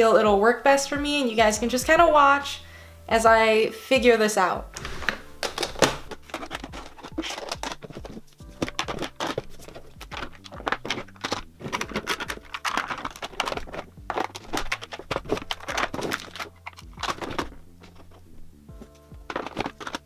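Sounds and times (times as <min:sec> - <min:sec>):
rustling: 0:04.8 - 0:20.0
small plastic items clattering: 0:04.8 - 0:20.0.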